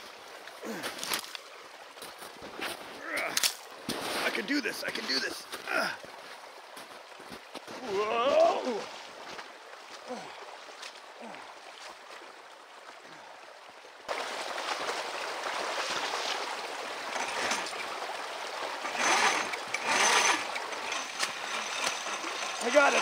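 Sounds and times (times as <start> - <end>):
creek water running: 0.0 - 23.0.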